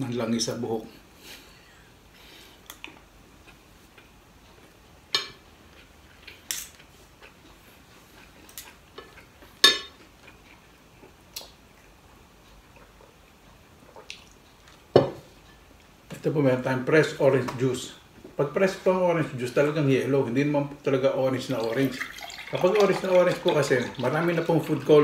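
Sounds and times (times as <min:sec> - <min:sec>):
cutlery clinking on a plate: 0:09.6 - 0:10.0.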